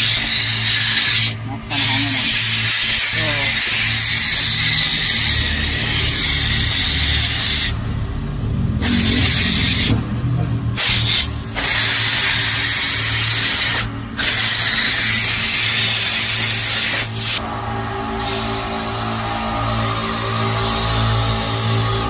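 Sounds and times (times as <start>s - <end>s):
compressed air blow gun hissing: 8.8s - 10.0s, 10.8s - 17.4s.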